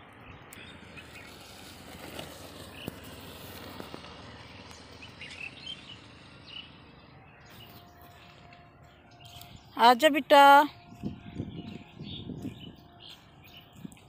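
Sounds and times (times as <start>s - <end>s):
bird chirps: 5.0s - 14.0s.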